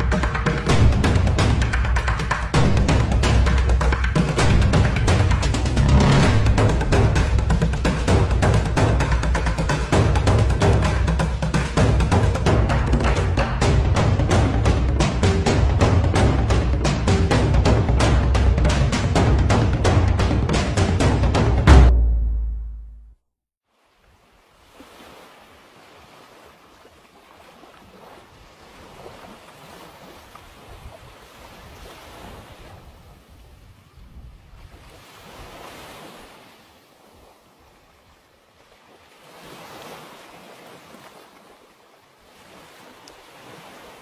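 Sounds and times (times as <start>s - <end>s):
sea waves washing on shore: 23.7s - 44.0s
wind buffeting microphone: 30.5s - 35.0s.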